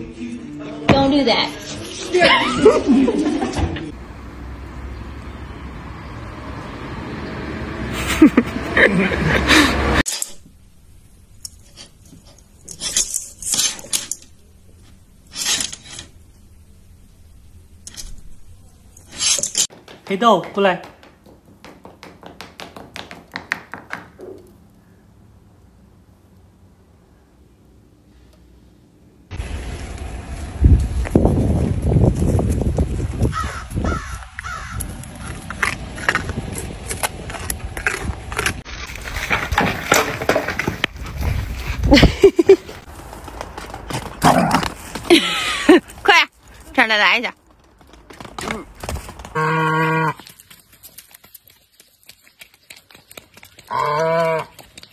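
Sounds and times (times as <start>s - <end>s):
deer crunching carrot: 33.5s - 41.8s, 47.4s - 54.9s.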